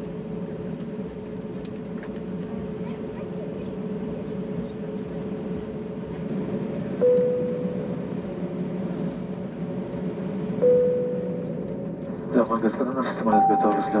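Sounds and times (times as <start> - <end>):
aircraft engine and cabin hum: 0.0 - 14.0
single-tone cabin chime: 7.0 - 8.1, 10.6 - 11.8, 13.3 - 14.0.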